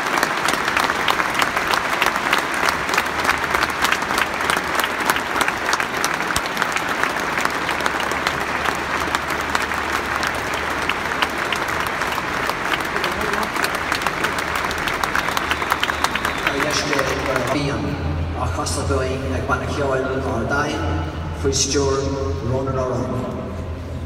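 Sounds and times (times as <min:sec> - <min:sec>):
stadium crowd applauding: 0:00.0 - 0:18.1.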